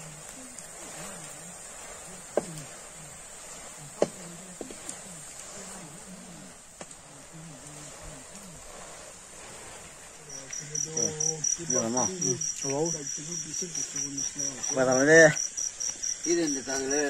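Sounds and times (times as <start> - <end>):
cricket chirping: 0.0 - 17.0
frying hiss in a wok: 0.0 - 17.0
people's voices: 10.0 - 15.4.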